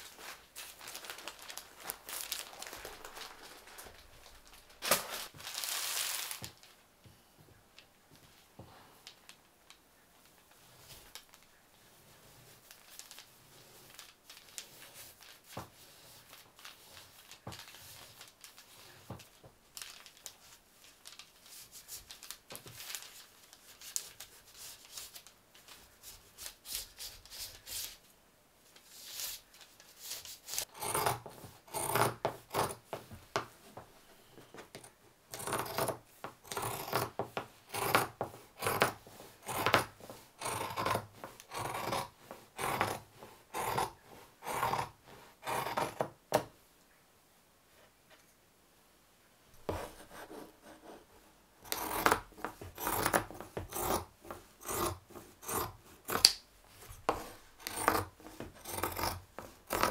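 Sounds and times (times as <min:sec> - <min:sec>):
tissue paper rustling: 0:00.0 - 0:06.8, 0:12.1 - 0:28.0
scissors snipping fabric: 0:30.7 - 0:32.8, 0:34.8 - 0:46.1, 0:51.7 - 0:56.4, 0:57.1 - 0:59.9.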